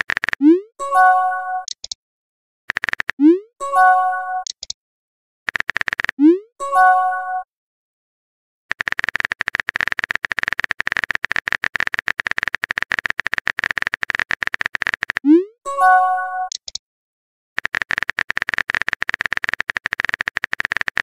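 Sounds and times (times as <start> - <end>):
phone keyboard clicks: 0.0 - 0.5, 1.6 - 2.0, 2.7 - 3.2, 4.4 - 4.8, 5.5 - 6.2, 8.7 - 15.3, 16.5 - 16.8, 17.6 - 21.0.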